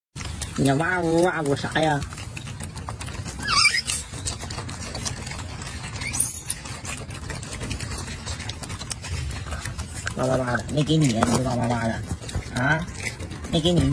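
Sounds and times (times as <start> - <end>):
monkey squealing calls: 3.2 - 4.5, 5.9 - 6.8.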